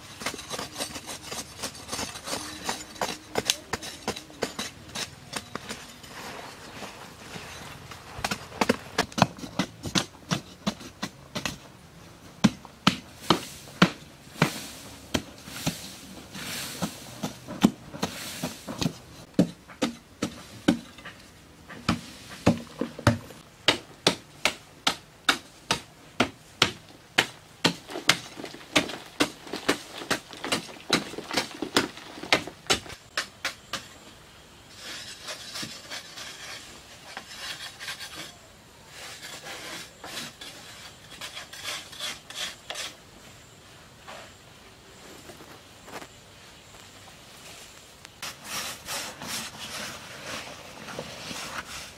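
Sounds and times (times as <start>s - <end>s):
scraping on earthen wall: 0.0s - 11.7s, 12.5s - 23.4s, 25.3s - 34.1s, 34.7s - 43.0s, 48.2s - 51.9s
hand tool chopping hard earth: 8.2s - 11.6s, 12.4s - 15.9s, 16.7s - 21.1s, 21.7s - 34.0s.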